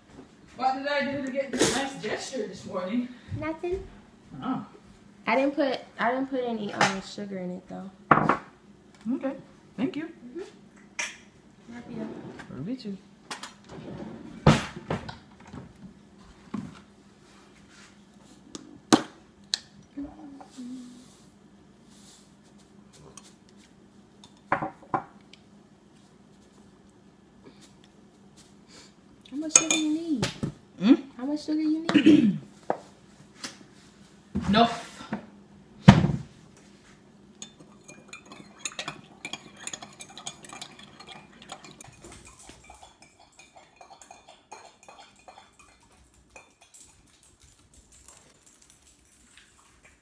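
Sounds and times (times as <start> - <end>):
knocks on kitchen counter: 8.1 - 8.5, 24.5 - 25.1, 35.8 - 36.3
dishes and cutlery clinking: 29.5 - 30.0, 37.4 - 50.0.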